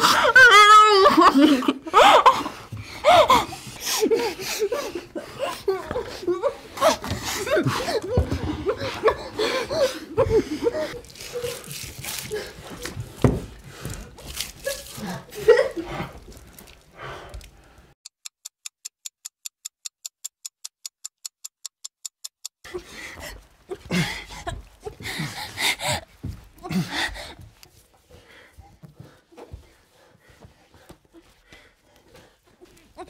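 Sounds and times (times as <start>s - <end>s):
people panting and gasping: 0.0s - 18.0s, 22.6s - 33.0s
rapid thin ticks: 18.0s - 22.6s.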